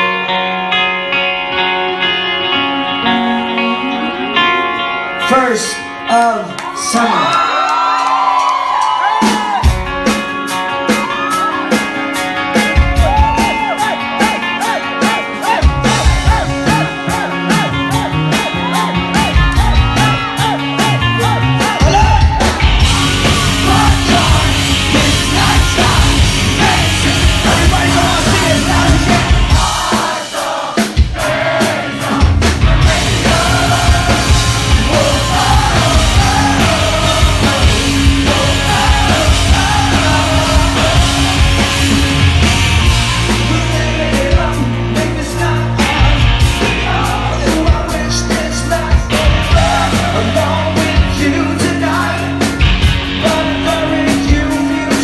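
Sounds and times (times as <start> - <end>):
live rock band playing: 0.0 - 55.0
man singing: 14.2 - 30.1, 32.0 - 42.0, 43.2 - 55.0.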